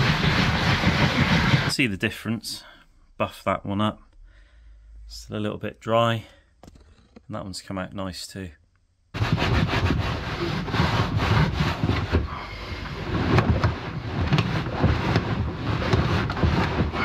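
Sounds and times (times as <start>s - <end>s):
rubbing and rustling on leather: 0.0s - 1.7s, 9.2s - 17.0s.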